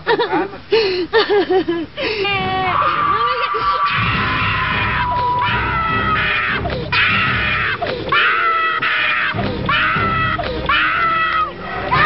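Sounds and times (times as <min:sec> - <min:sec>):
woman screaming: 0:02.6 - 0:12.0.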